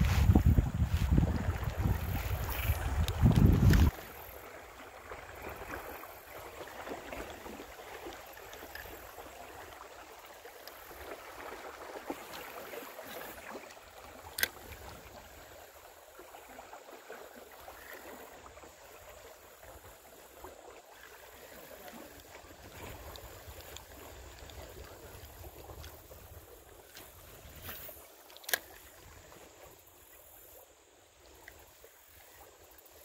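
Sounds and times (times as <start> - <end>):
wind buffeting microphone: 0.0 - 4.0
water rushing: 0.0 - 33.0.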